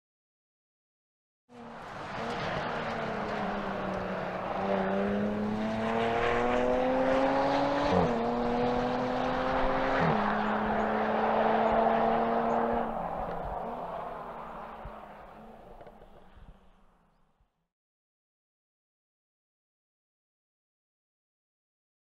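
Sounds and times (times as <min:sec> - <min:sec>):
sports car engine accelerating: 0:01.5 - 0:16.7
road noise: 0:01.5 - 0:17.4.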